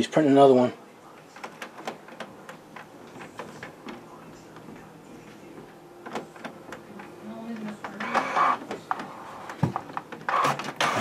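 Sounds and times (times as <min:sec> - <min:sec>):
printer mechanism clicking: 0:06.0 - 0:09.1.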